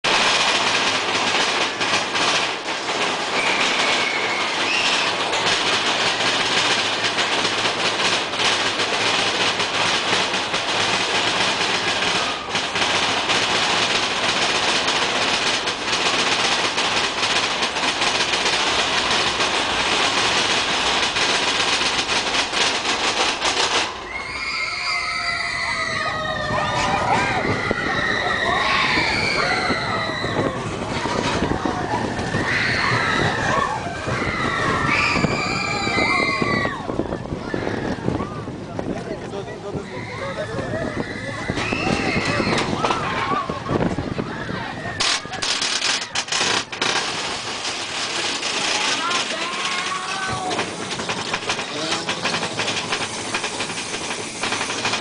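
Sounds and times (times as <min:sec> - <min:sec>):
roller coaster wheels rumbling: 0:00.0 - 0:55.0
rushing air: 0:40.1 - 0:55.0
riders shouting: 0:48.6 - 0:50.9.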